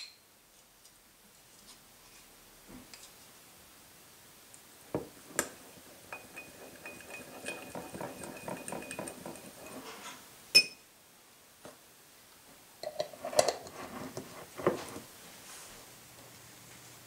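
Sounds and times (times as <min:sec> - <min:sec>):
spoon scraping glass bowl: 0:05.6 - 0:10.2, 0:12.8 - 0:15.0
spoon clinking on glass: 0:06.1 - 0:09.9
spoon knocks: 0:06.2 - 0:09.8.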